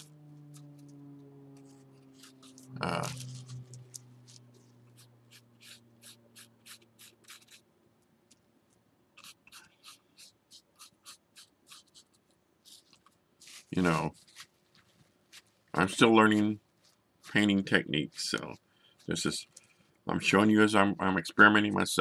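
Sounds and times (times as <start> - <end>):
paintbrush scratching and dabbing: 0.0 - 7.7, 9.2 - 19.4
low hum: 0.0 - 9.2.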